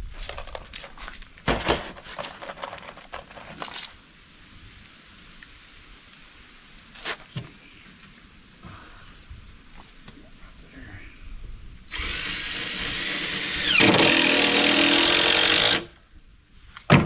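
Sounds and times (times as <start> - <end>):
screws clinking and rattling: 0.0 - 4.0.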